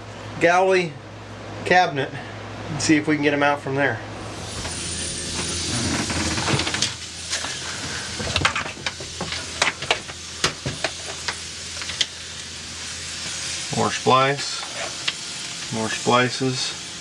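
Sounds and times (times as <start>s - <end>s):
steady hiss: 3.8s - 17.0s.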